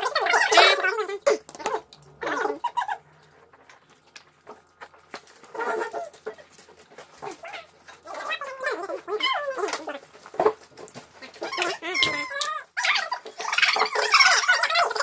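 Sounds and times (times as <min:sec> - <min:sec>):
sped-up squeaky voices: 0:11.3 - 0:15.0.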